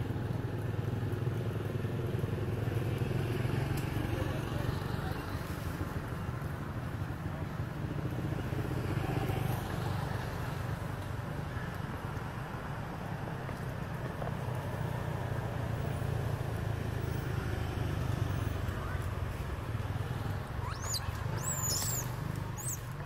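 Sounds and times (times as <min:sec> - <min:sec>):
high-pitched squeals: 0:20.6 - 0:22.8.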